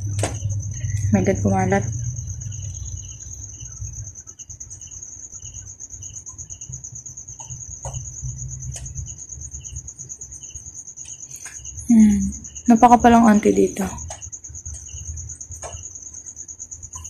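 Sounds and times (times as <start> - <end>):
low hum: 0.0 - 5.2
crickets chirping: 0.0 - 17.0.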